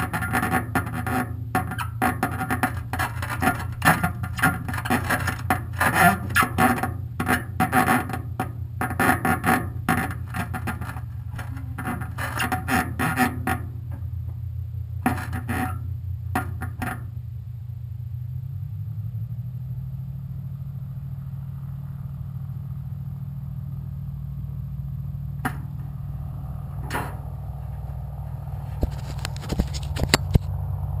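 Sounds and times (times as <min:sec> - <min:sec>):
engine humming: 0:00.0 - 0:31.0.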